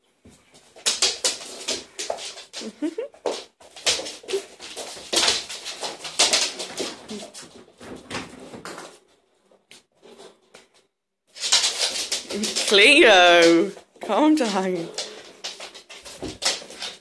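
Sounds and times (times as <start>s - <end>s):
dogs play-fighting scuffles: 0.2s - 9.0s, 14.9s - 17.0s.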